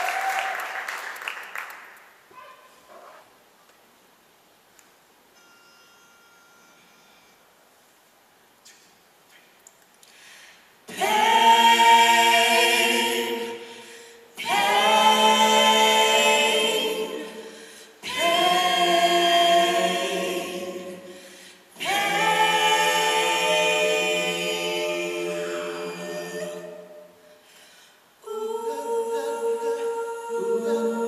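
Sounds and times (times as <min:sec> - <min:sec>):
a cappella group singing chords: 0:10.8 - 0:31.0.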